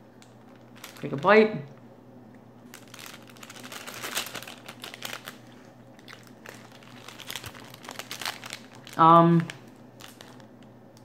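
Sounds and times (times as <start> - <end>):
plastic wrapper crinkling: 0.2 - 1.9, 2.6 - 11.0
chewing crunchy bar: 2.7 - 9.0.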